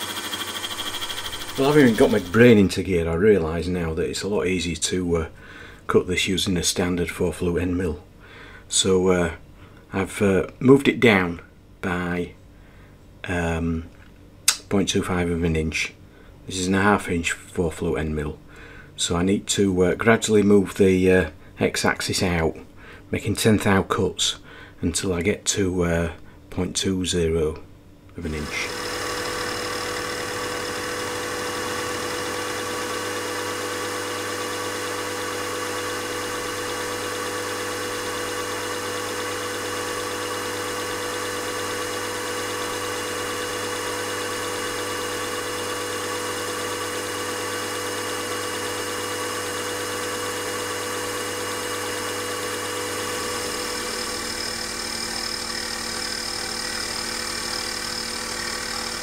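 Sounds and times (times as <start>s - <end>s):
milling machine humming: 0.0s - 2.6s, 28.3s - 59.0s.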